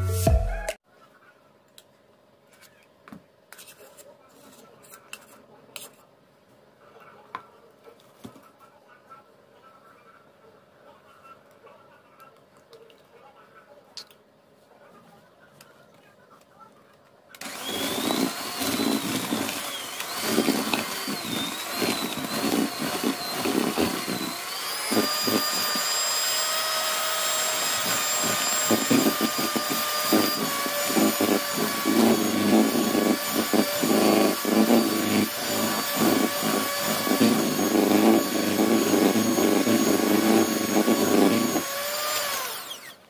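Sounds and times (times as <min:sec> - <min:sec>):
electric hand mixer motor whine: 0:17.4 - 0:43.0.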